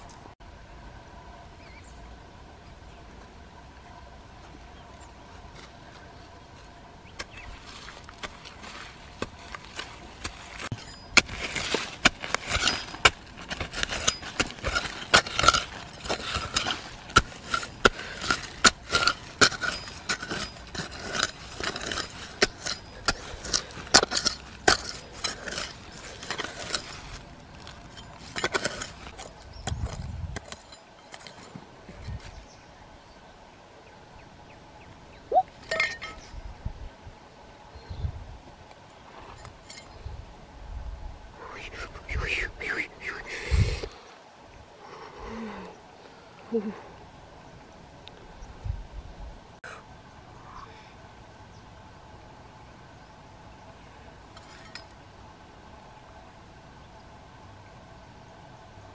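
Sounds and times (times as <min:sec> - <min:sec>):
knife digging into stony soil: 0:07.1 - 0:32.4.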